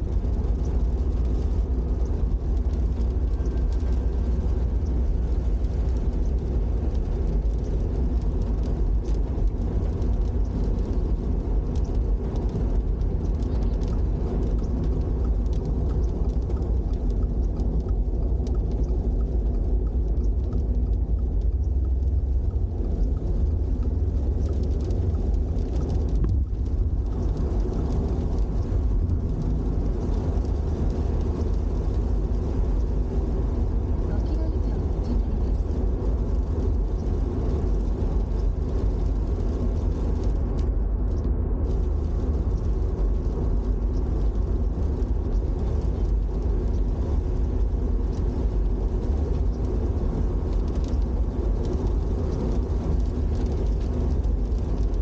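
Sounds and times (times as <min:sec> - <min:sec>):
car engine rumble: 0:00.0 - 0:55.0
road and tyre noise: 0:00.0 - 0:55.0
faint ticks: 0:00.2 - 0:33.4.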